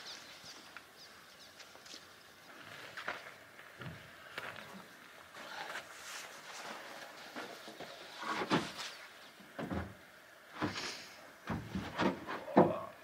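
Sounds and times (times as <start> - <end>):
wooden boards knocking and scraping: 7.4 - 8.9, 11.5 - 12.9.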